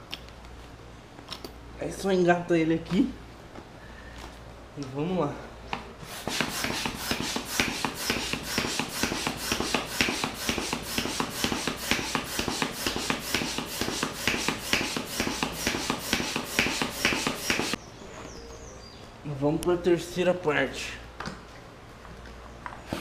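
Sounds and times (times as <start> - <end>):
hand air pump strokes: 6.0 - 17.8.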